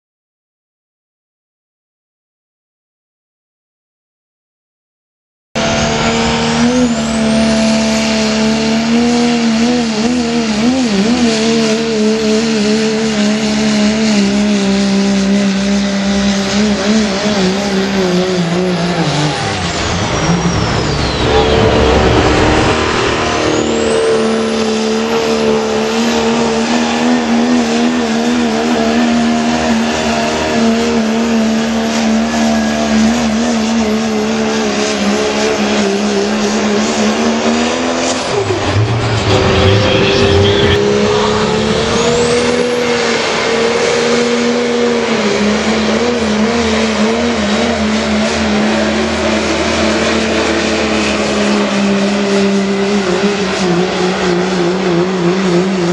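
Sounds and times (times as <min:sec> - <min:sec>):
diesel engines running flat out: 0:05.6 - 0:55.9
high turbo whistle: 0:18.4 - 0:27.2, 0:38.0 - 0:45.1.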